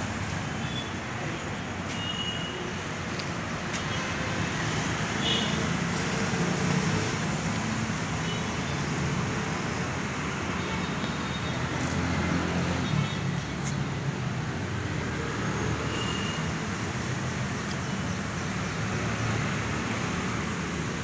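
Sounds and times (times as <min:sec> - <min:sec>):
continuous traffic hiss: 0:00.0 - 0:21.0.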